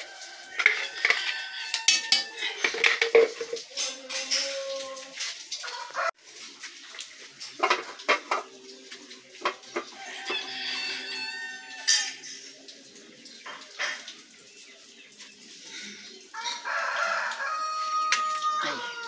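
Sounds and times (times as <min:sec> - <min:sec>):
metal cookware clattering on stove: 0:00.5 - 0:05.4, 0:07.5 - 0:08.5.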